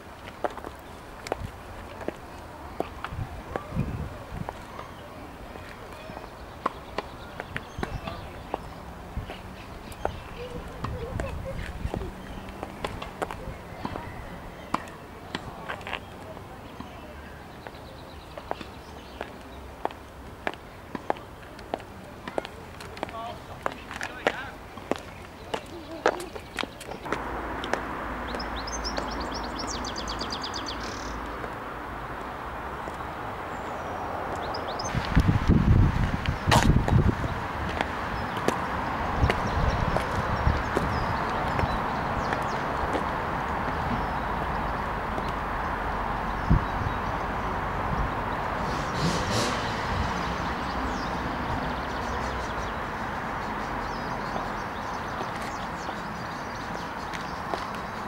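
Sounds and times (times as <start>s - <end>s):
outdoor background noise: 0.0s - 58.0s
songbird singing a trill: 28.2s - 31.4s.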